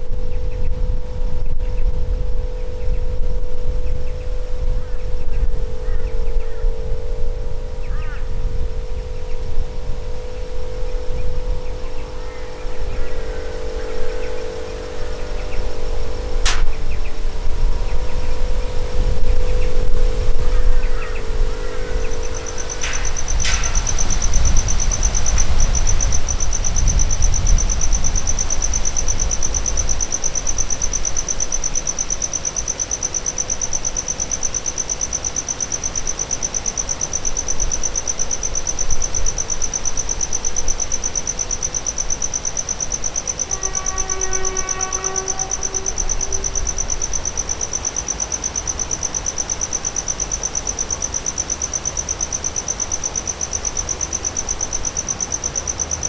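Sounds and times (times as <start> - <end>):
single pitched tone: 0.0 - 29.9, 43.1 - 47.7
insects buzzing: 0.0 - 56.0
train wagons rumbling on track: 22.2 - 28.8.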